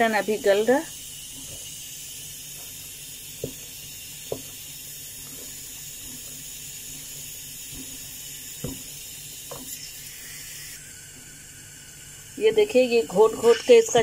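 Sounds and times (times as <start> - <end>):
stove hiss: 0.0 - 14.0.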